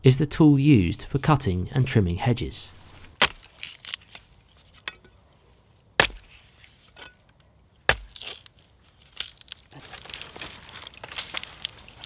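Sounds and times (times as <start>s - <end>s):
billhook chopping wood: 3.2s - 3.7s, 6.0s - 6.4s, 7.8s - 8.5s.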